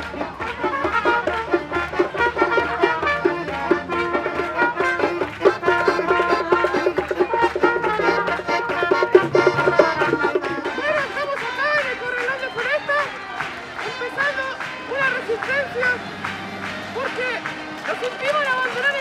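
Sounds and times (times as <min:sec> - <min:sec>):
lively brass music: 0:00.0 - 0:12.7, 0:13.3 - 0:19.0.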